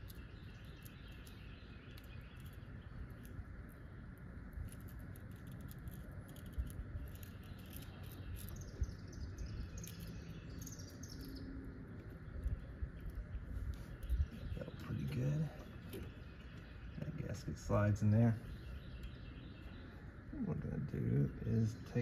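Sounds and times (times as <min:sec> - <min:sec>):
bird chirping: 0:00.0 - 0:22.0
low background rumble: 0:00.0 - 0:22.0
clicks and rustles of handling: 0:04.5 - 0:17.0.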